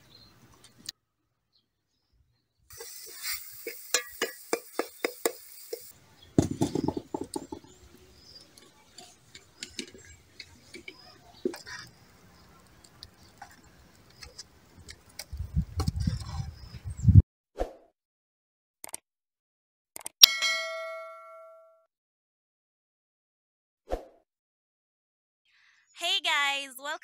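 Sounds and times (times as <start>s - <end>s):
hiss: 2.7s - 6.0s
spoon knocking metal pot: 3.9s - 7.8s.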